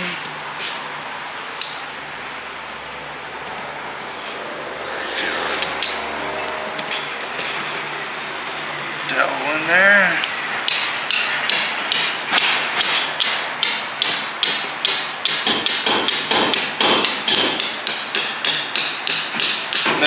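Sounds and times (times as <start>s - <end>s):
hammer tapping metal: 10.2s - 20.0s.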